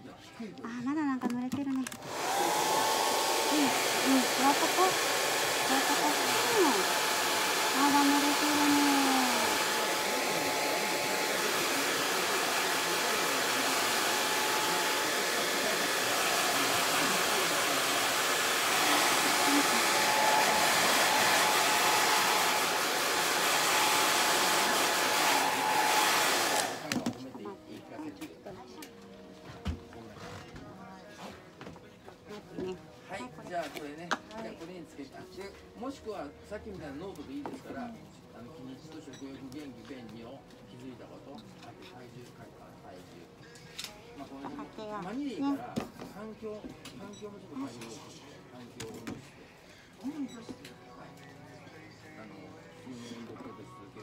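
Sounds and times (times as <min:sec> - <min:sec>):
hair dryer blowing: 0:02.0 - 0:27.1.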